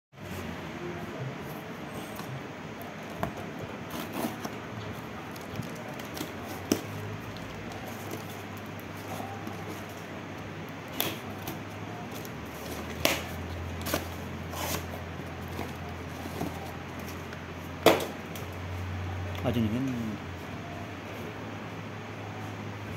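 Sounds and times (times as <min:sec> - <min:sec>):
cardboard scraping and crinkling: 0:03.1 - 0:10.1, 0:11.2 - 0:17.3.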